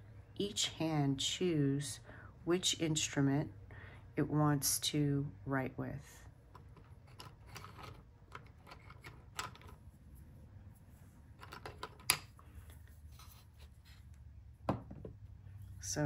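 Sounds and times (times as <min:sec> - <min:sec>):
pencils rattling in a wooden box: 0:06.5 - 0:09.8, 0:11.4 - 0:12.3.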